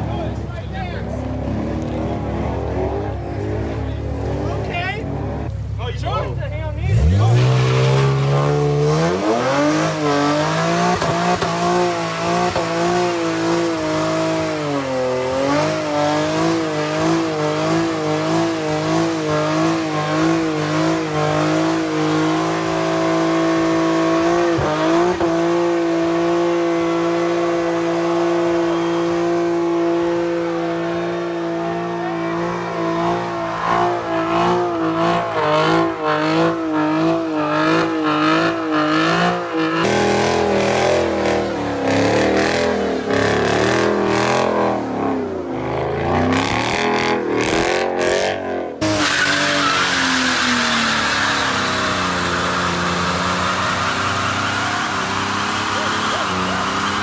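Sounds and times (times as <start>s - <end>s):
car engine at high revs: 0.0s - 5.8s, 6.8s - 57.0s
tyre squealing on tarmac: 6.9s - 41.7s, 48.8s - 57.0s.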